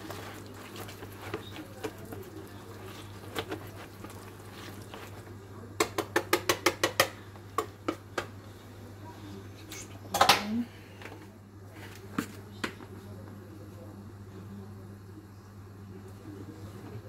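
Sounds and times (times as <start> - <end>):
whisk working wet dough: 0.0 - 8.6.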